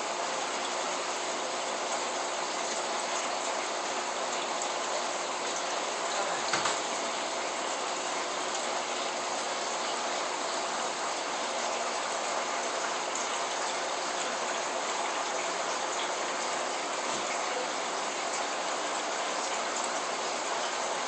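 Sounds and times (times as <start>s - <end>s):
aquarium water rushing hiss: 0.0s - 21.0s.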